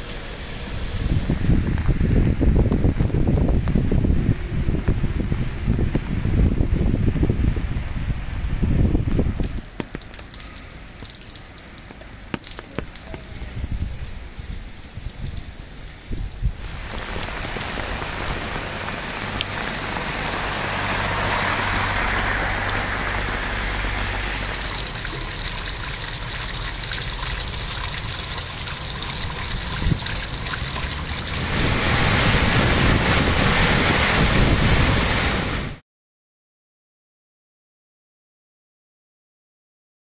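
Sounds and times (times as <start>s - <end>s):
rain falling on wet street: 0.0s - 35.8s
water gushing from drainpipe: 9.0s - 15.8s, 16.4s - 35.6s
water pouring into drain grate: 9.1s - 15.5s, 16.4s - 35.3s.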